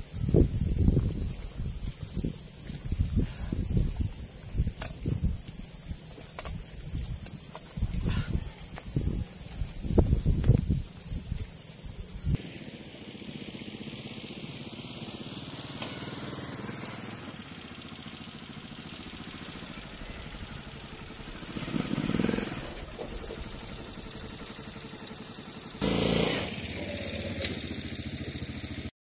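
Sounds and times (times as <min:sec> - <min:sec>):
small motorcycle engine driving past: 0:12.4 - 0:28.9.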